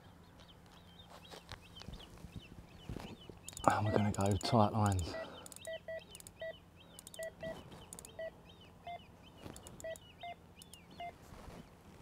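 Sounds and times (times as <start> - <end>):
bite alarm bleeps: 3.6 - 4.5.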